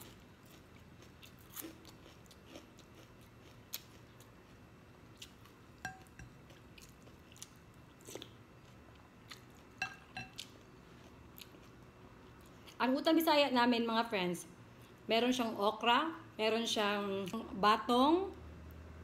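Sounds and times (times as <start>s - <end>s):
chewing and mouth clicks: 0.0s - 12.8s
spoon clinking glass bowl: 5.8s - 6.4s, 9.8s - 10.4s.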